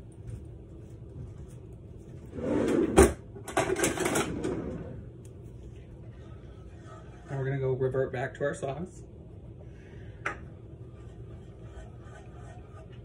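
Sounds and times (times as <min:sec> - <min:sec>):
rustling scrape: 0:00.3 - 0:03.0.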